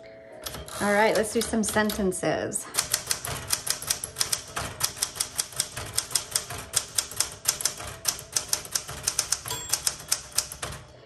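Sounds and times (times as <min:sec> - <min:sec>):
manual typewriter typing: 0:00.4 - 0:11.0
typewriter margin bell ringing: 0:05.7 - 0:10.9.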